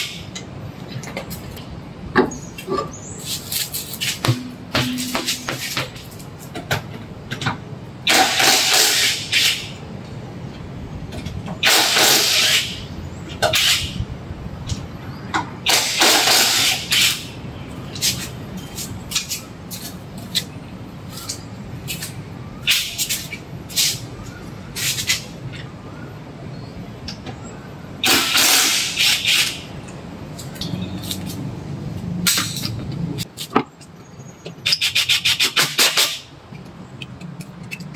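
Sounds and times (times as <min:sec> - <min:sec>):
impact wrench hammering: 0:04.2 - 0:05.7.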